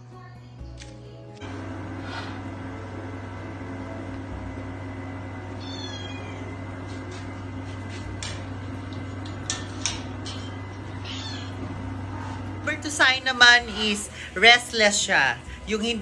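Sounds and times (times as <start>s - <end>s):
steady low hum: 0.0s - 16.0s
cat meowing: 5.6s - 6.5s, 11.0s - 11.6s.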